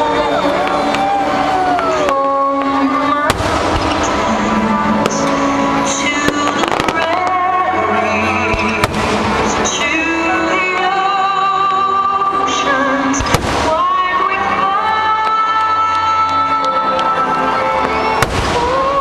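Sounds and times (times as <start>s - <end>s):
fireworks bursting and crackling: 0.0s - 19.0s
music with singing voice: 0.0s - 19.0s
sharp firework bangs: 3.3s - 4.3s, 8.5s - 9.6s, 13.2s - 13.9s.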